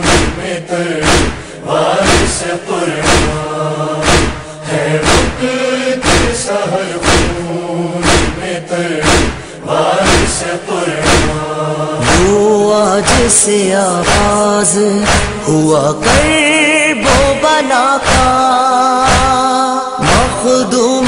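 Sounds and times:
chest-beating thuds: 0.0s - 6.4s, 7.0s - 7.4s, 8.0s - 13.4s, 14.0s - 17.4s, 18.0s - 18.4s, 19.1s - 19.4s
chorus chanting a lament: 0.0s - 21.0s.

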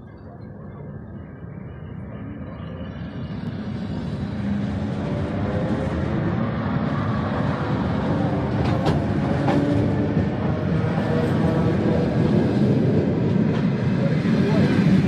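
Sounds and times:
train wheels rumbling past: 3.2s - 15.0s.

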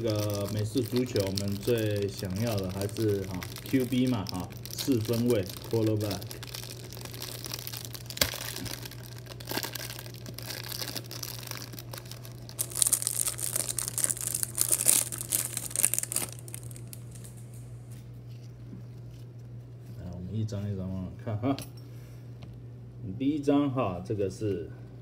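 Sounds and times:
cellophane wrapper tearing and crinkling: 0.0s - 19.9s.

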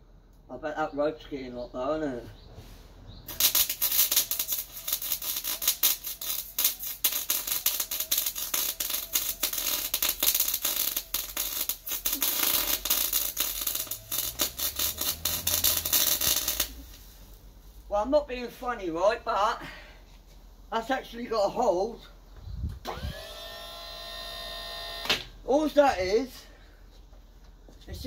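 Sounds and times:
arc welding crackle: 3.3s - 17.4s.

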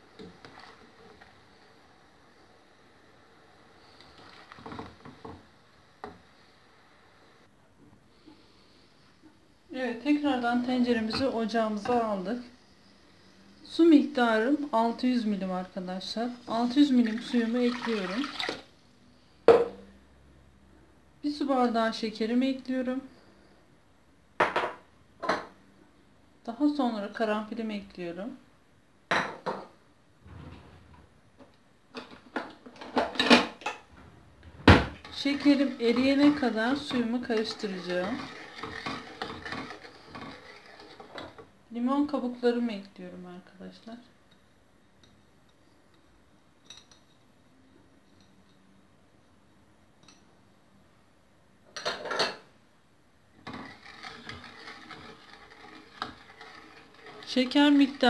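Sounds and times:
spoon scraping pot bottom: 35.0s - 41.4s, 53.4s - 58.0s.

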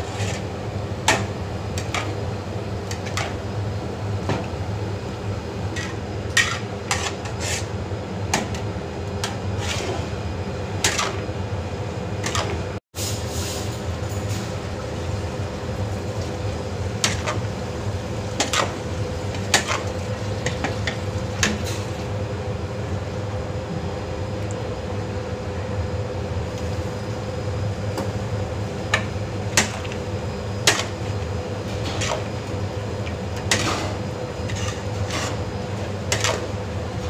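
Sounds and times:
metal spatula scraping wok: 0.0s - 0.5s, 5.8s - 7.8s, 9.2s - 10.2s, 10.8s - 11.2s, 31.8s - 32.3s, 33.5s - 35.5s
steady low hum: 13.8s - 37.0s.

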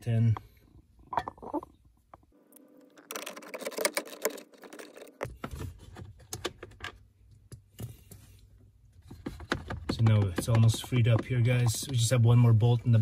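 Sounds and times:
small metallic clicks and rattles: 2.8s - 5.3s.

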